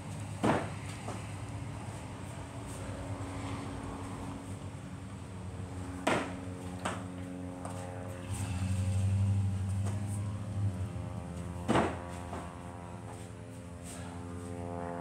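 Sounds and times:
steady low hum: 0:00.0 - 0:15.0
feet thudding on landings: 0:00.2 - 0:01.4, 0:05.9 - 0:07.9, 0:11.4 - 0:14.0
low rumble: 0:08.1 - 0:11.7.

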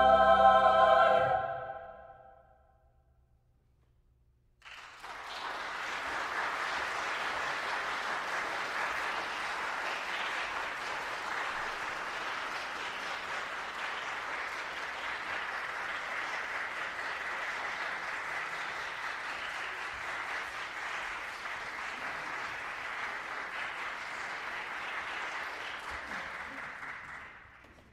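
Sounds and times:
audience applauding: 0:04.6 - 0:27.9.

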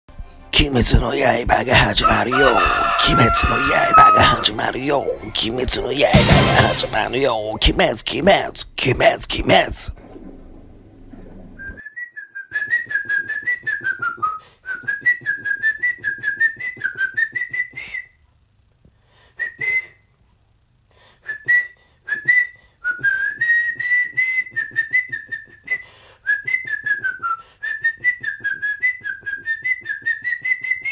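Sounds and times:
person whistling a melody: 0:11.6 - 0:18.2, 0:19.4 - 0:20.0, 0:21.3 - 0:30.9.

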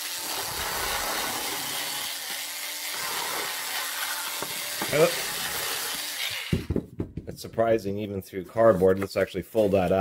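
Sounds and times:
rotary cutter motor hum: 0:00.0 - 0:06.5
blade cutting cardboard: 0:00.0 - 0:06.8.

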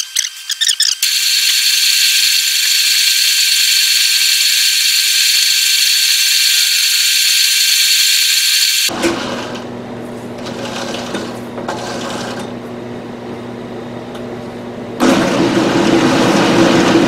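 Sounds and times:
metal lathe cutting whir: 0:01.0 - 0:08.9.

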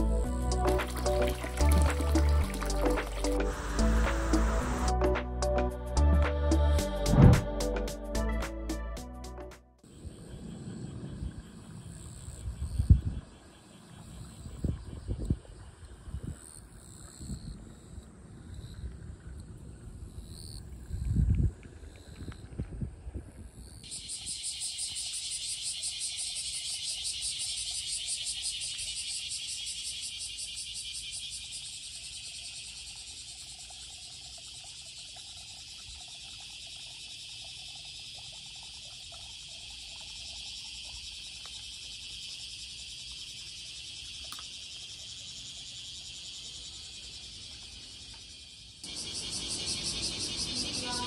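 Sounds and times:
insects buzzing shrilly: 0:00.0 - 0:05.0, 0:23.6 - 0:33.7, 0:40.3 - 0:51.0.

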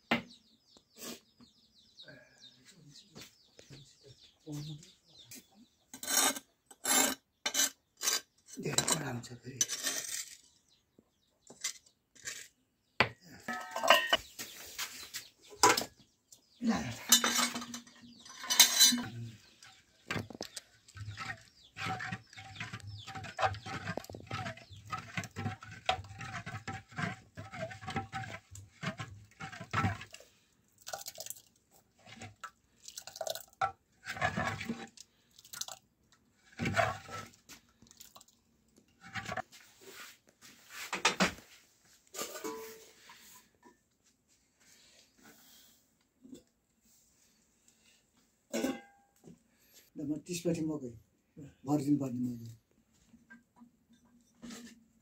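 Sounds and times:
metal pots and dishes clinking: 0:13.0 - 0:14.3, 0:15.6 - 0:15.9, 0:16.8 - 0:19.3, 0:42.1 - 0:43.0, 0:48.5 - 0:49.1.

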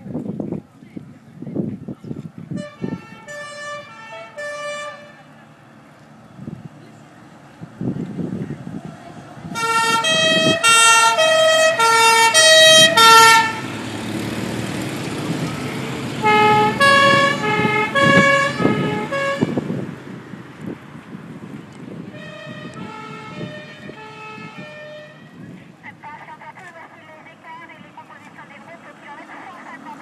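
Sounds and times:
motorcycle engines passing: 0:01.8 - 0:30.0
two-tone sirens: 0:02.6 - 0:05.4, 0:08.7 - 0:14.2, 0:15.0 - 0:19.9, 0:22.0 - 0:25.6.

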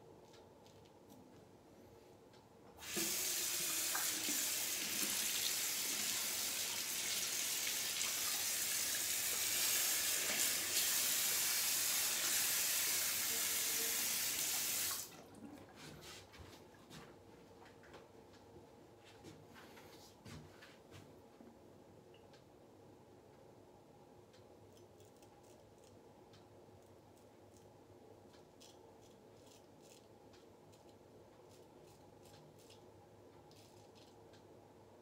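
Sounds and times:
sink tap running: 0:02.8 - 0:15.0.

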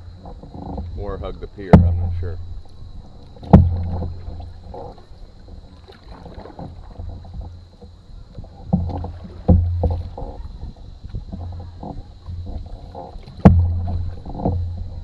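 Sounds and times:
paddle strokes splashing: 0:00.0 - 0:15.0
steady low rumble: 0:00.0 - 0:15.0
water rushing along hull: 0:00.0 - 0:15.0
sharp knocks: 0:00.2 - 0:05.0, 0:11.3 - 0:14.8.

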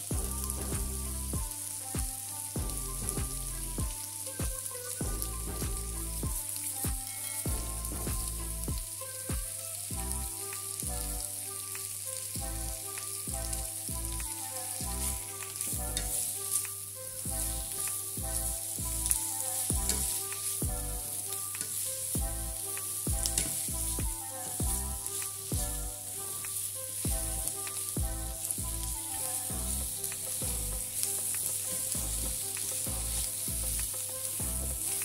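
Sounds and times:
background music with bass beat: 0:00.0 - 0:35.0
vegetables sizzling in a frying pan: 0:00.0 - 0:35.0
spatula scraping and tapping pan: 0:31.0 - 0:35.0.

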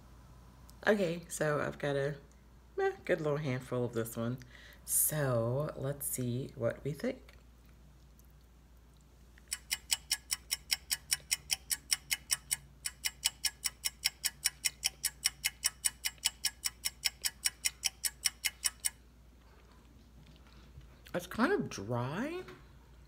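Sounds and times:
fast clock ticking: 0:09.5 - 0:19.0.

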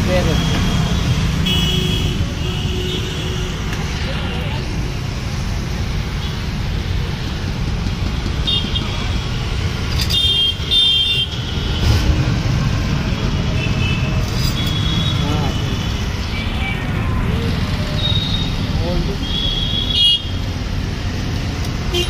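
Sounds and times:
road traffic rumble: 0:00.0 - 0:22.0
vehicle horns honking: 0:00.2 - 0:03.6, 0:19.2 - 0:20.4.

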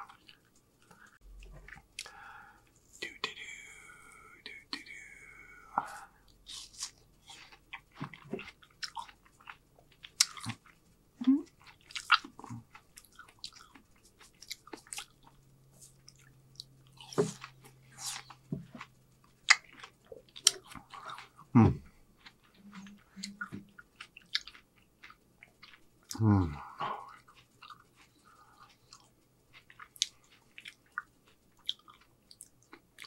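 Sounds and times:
crunchy chewing and biting: 0:06.5 - 0:33.0
wet mouth sounds: 0:17.1 - 0:29.0.

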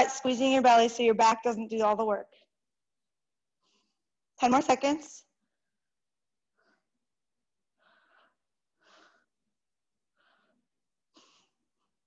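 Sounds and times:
woman breathing: 0:06.4 - 0:12.0.

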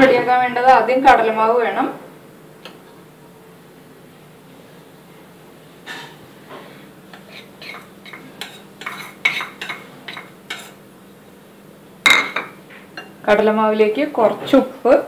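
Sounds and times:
metal spoon scraping a bowl: 0:07.1 - 0:10.8.

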